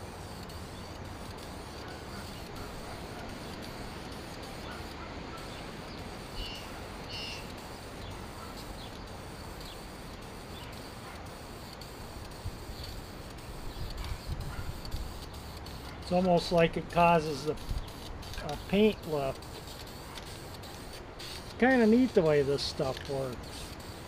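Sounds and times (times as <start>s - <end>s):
steady background noise: 0.0s - 24.0s
faint bird chirps: 4.7s - 8.2s.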